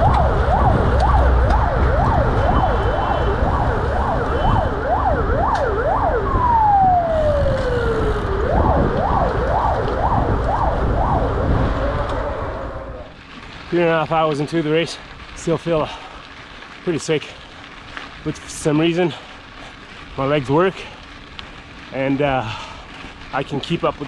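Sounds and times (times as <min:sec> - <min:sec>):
vehicle siren yelping: 0:00.0 - 0:13.2
low rumble: 0:00.0 - 0:13.8.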